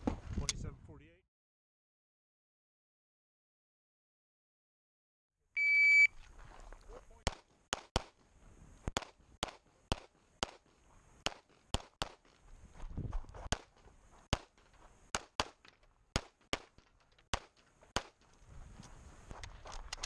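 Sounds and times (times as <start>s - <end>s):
pistol gunshots: 9.0s - 10.6s, 13.5s - 18.2s.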